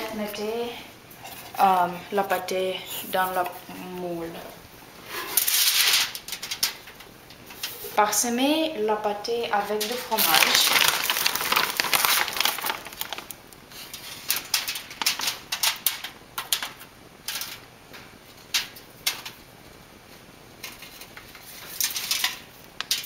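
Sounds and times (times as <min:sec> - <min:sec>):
plastic bag rustling: 0:09.7 - 0:15.5
foil crinkling: 0:09.8 - 0:17.6.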